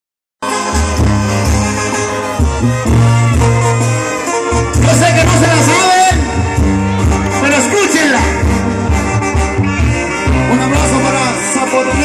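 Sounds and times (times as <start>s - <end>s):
brass band playing: 0.4s - 12.0s
tuba bass line: 0.4s - 12.0s
man singing: 10.3s - 12.0s.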